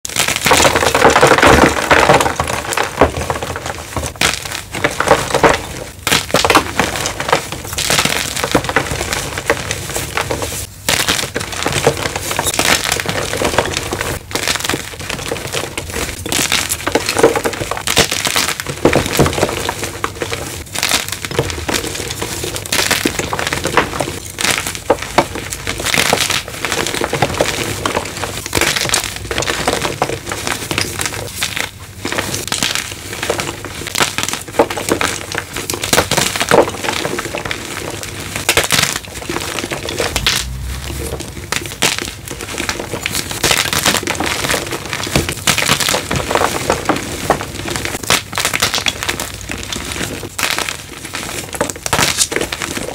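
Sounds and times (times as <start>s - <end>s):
chalk blocks crunching: 0.1s - 52.9s.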